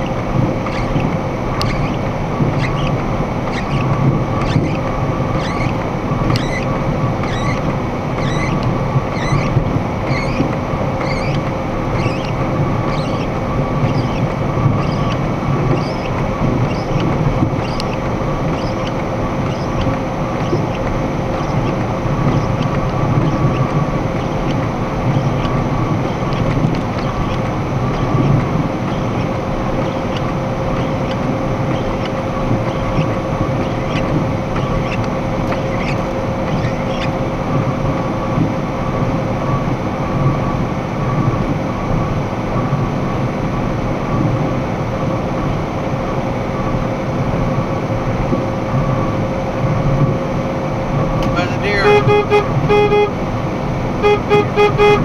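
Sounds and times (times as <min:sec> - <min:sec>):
light regular ticking: 0:00.0 - 0:37.2
faint steady hum: 0:00.0 - 0:55.0
truck engine and road noise: 0:00.0 - 0:55.0.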